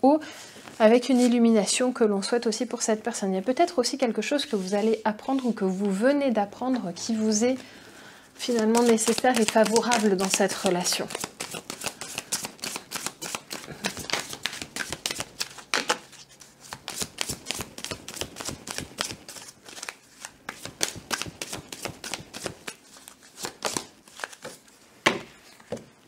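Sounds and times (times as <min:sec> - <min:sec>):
cards being shuffled: 0:08.4 - 0:24.8.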